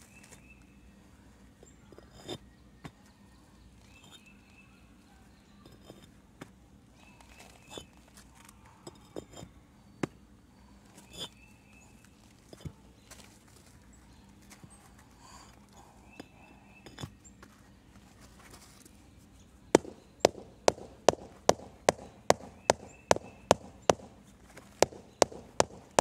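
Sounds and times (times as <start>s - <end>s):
faint steady hum: 0.0s - 26.0s
concrete pavers knocking: 19.8s - 26.0s.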